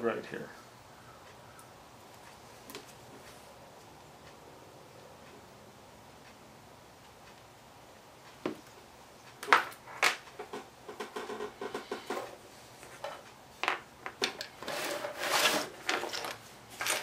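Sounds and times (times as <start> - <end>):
small parts rattling: 12.9 - 17.0
loose terminals clattering: 13.0 - 17.0.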